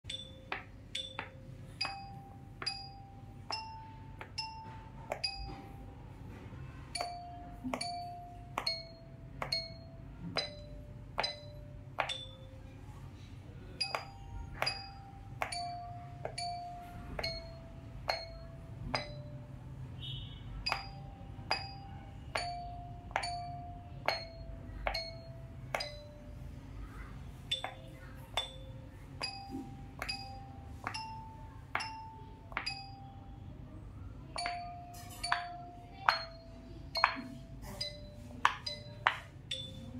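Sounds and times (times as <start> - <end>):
pop-it bubbles tapped with stick: 7.0 - 12.4, 20.6 - 26.1.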